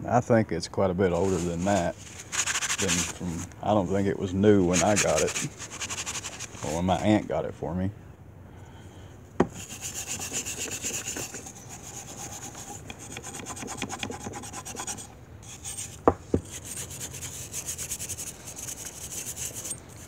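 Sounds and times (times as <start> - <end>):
wire brush scrubbing steel: 1.2 - 3.5, 4.5 - 6.8, 9.5 - 20.0.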